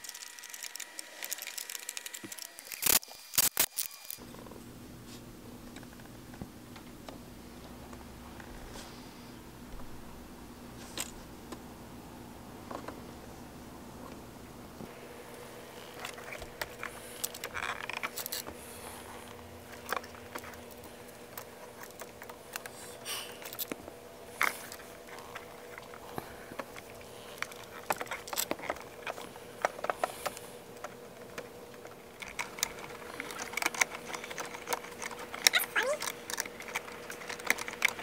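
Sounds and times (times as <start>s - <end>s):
faint steady hum: 0.0s - 38.0s
wires rattling against box: 24.4s - 38.0s.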